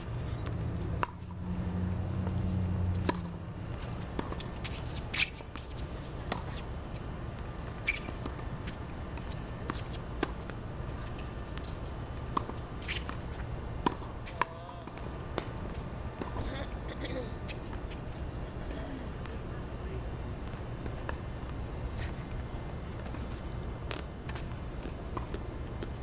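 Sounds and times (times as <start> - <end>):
tennis balls hit and bouncing: 0.4 - 1.5, 2.2 - 16.7, 20.4 - 26.0.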